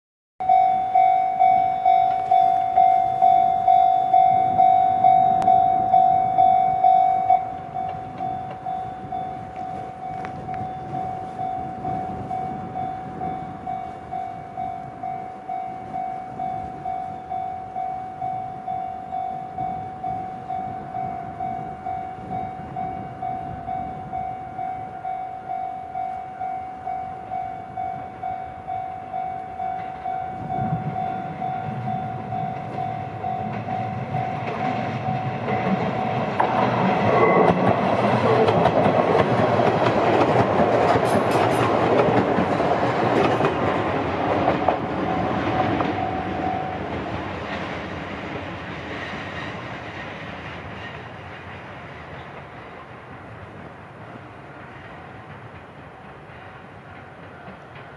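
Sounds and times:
level crossing bell dinging: 0.4 - 36.4
electric train rumble: 0.4 - 57.9
train wheels on rails: 0.4 - 57.9.

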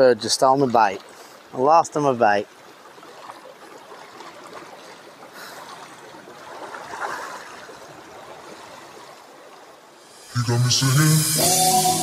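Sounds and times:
waves lapping against rocks: 0.0 - 10.0.

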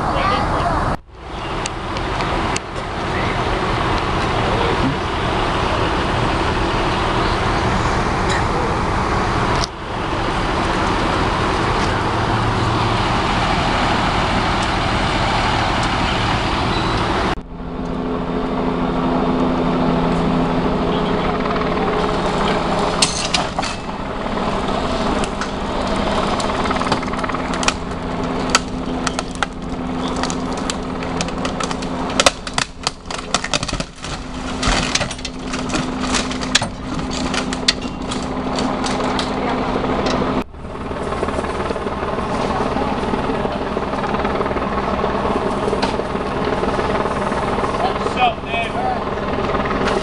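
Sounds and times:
vehicle engine droning: 0.0 - 50.0
metal clanks and knocks: 23.0 - 24.0, 32.2 - 39.3.

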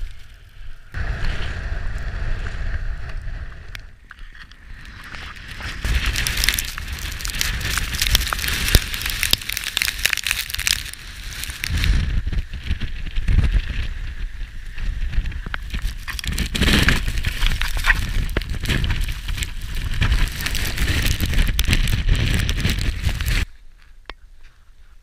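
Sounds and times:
gusty wind buffeting microphone: 0.0 - 23.5
snow hissing against camera: 5.3 - 23.5.

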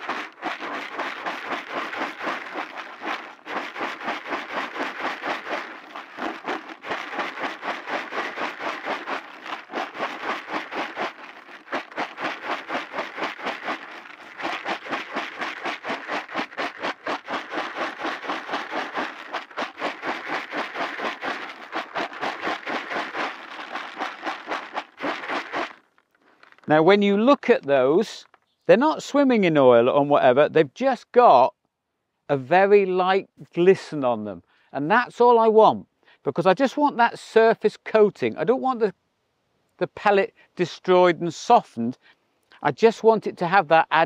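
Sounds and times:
pellets rattling in a shaken bucket: 0.0 - 28.4.

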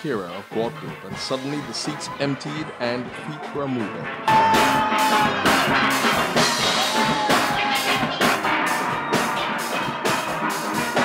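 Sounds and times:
steady drum beat: 4.2 - 11.0.

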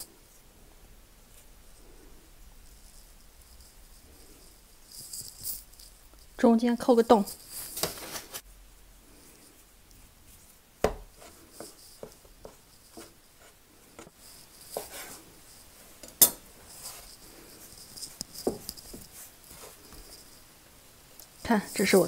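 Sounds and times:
hands rolling dough: 9.0 - 22.0
knife knocking on wooden board: 10.8 - 11.1.

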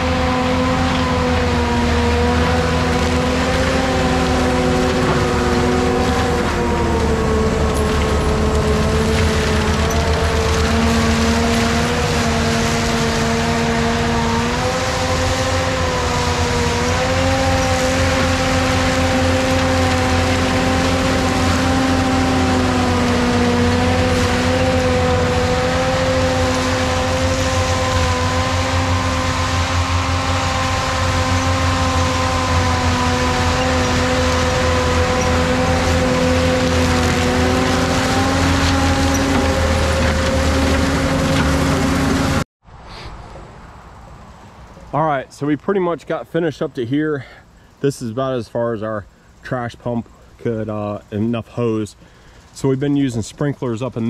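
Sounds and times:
mulcher engine and drum whine: 0.0 - 42.5.

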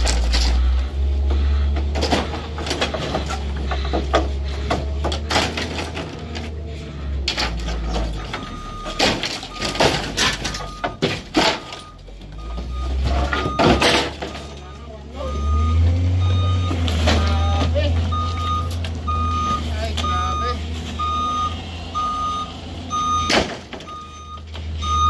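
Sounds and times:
truck engine knocking: 0.5 - 6.3
reversing beeper: 6.8 - 25.0.

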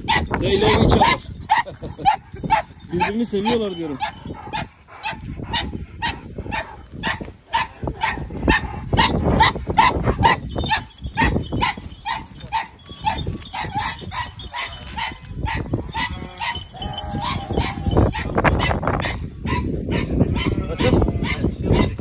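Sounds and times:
dog barking: 0.0 - 3.2, 4.0 - 22.0.

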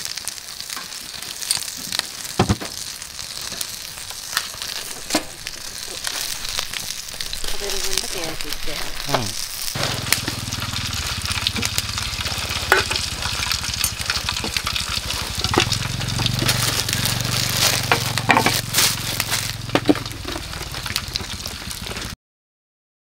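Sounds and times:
fire popping and crackling: 0.0 - 22.2
meat sizzling on a grill: 0.0 - 22.2
low rumble: 3.2 - 22.0.

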